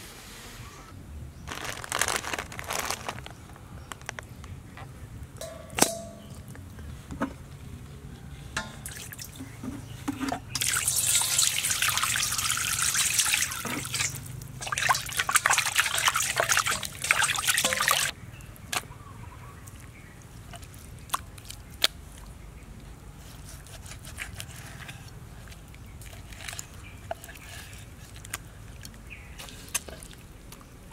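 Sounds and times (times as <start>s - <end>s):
water splashing in a steel bowl: 8.6s - 9.6s, 10.3s - 18.2s.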